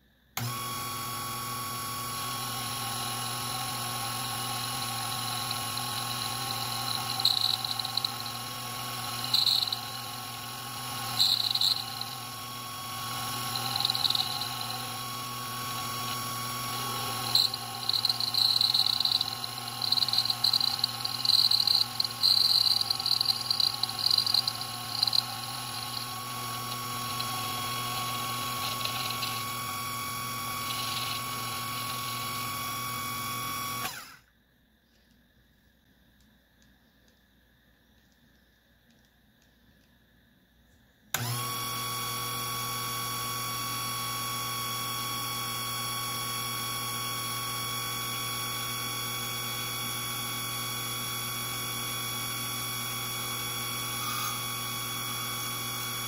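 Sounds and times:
lathe motor whine: 0.4s - 34.2s, 41.2s - 56.0s
tool bit squealing on metal: 6.2s - 8.4s, 9.0s - 10.2s, 10.8s - 12.3s, 13.4s - 14.8s, 16.8s - 29.6s, 30.5s - 32.2s.

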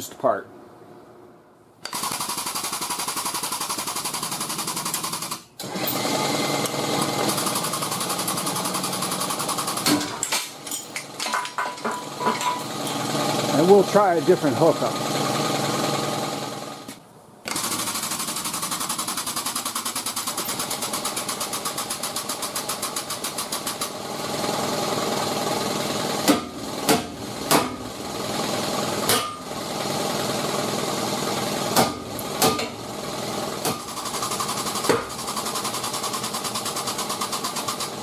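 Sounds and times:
hydraulic pump running: 1.8s - 38.0s
hammer striking metal: 26.3s - 27.8s, 29.1s - 29.4s.

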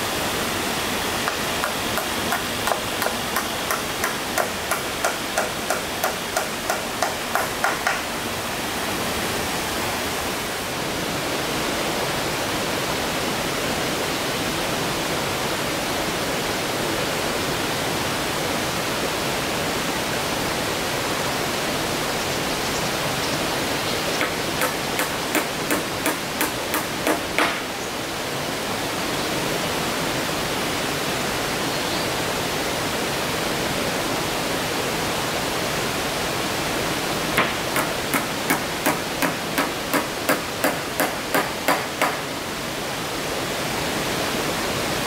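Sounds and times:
waterfall rushing: 0.0s - 45.0s
hammer blows on wood: 1.2s - 8.0s, 24.2s - 27.7s, 37.4s - 42.2s.

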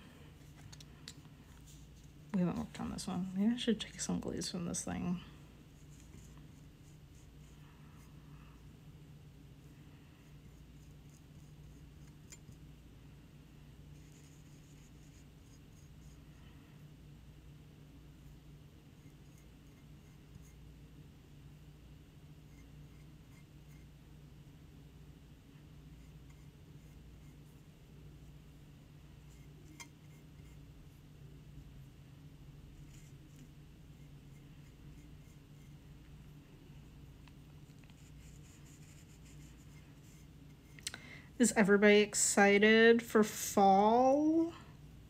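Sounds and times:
steady low hum: 0.0s - 45.0s
paintbrush scratching on ceramic: 14.0s - 16.2s, 19.0s - 20.6s, 22.4s - 23.9s, 26.0s - 27.6s, 29.2s - 30.7s, 32.6s - 35.9s, 37.6s - 40.8s.

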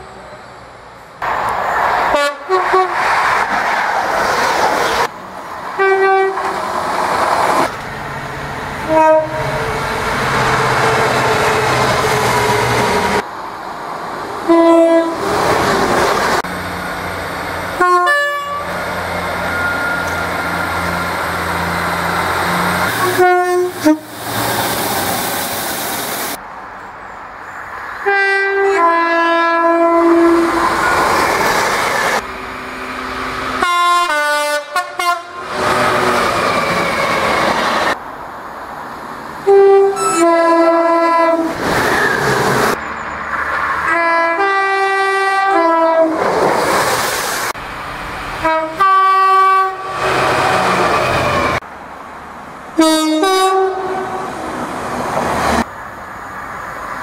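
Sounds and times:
trains passing: 0.0s - 57.0s
train two-tone horn blasts: 2.1s - 3.0s, 5.8s - 6.6s, 8.8s - 9.6s, 14.4s - 15.3s, 17.8s - 18.8s, 22.4s - 24.2s, 28.0s - 30.6s, 33.6s - 35.9s, 39.4s - 41.5s, 43.8s - 46.2s, 48.4s - 50.1s, 52.8s - 54.4s.

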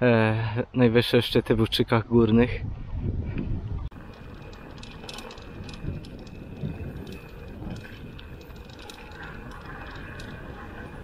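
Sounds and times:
wind buffeting microphone: 1.6s - 11.0s
bike tyre rumble: 3.2s - 11.0s
gravel and bike part rattles: 3.3s - 11.0s.

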